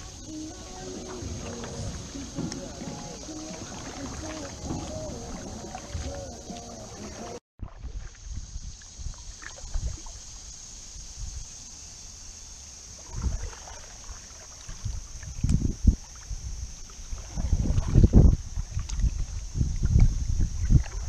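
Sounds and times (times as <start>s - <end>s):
paddle strokes swishing through water: 0.0s - 8.3s, 13.0s - 21.0s
wind on microphone: 0.0s - 10.2s, 13.0s - 13.7s, 14.7s - 21.0s
low thumps from canoe hull: 0.9s - 7.7s.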